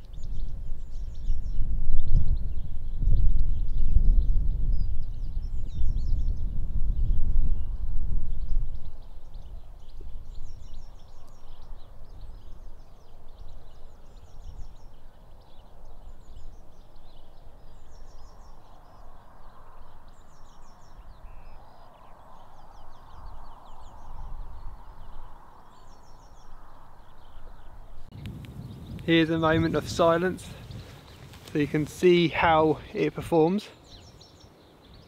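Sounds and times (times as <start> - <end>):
small birds trilling: 0.0 - 35.0
wind buffeting microphone: 0.0 - 35.0.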